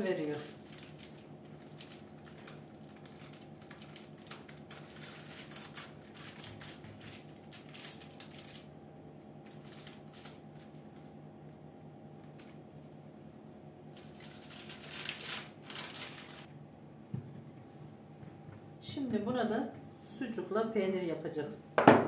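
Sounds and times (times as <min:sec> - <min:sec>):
baking paper crinkling: 0:00.0 - 0:08.7, 0:09.4 - 0:11.6, 0:13.9 - 0:16.5
steady low hum: 0:00.0 - 0:22.0.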